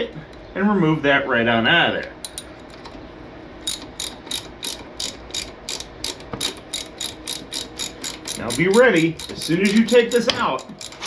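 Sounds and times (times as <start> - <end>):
socket ratchet clicking: 3.6 - 11.0.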